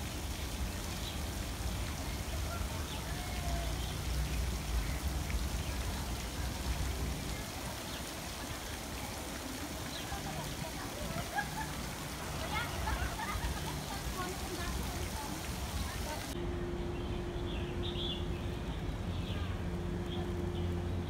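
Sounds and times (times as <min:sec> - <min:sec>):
fountain splashing onto water: 0:00.0 - 0:16.4.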